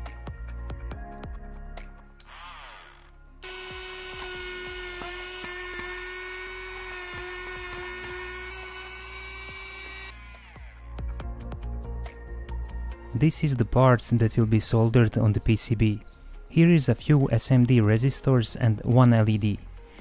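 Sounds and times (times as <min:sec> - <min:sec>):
rotary tool drilling whine: 0:02.2 - 0:11.0.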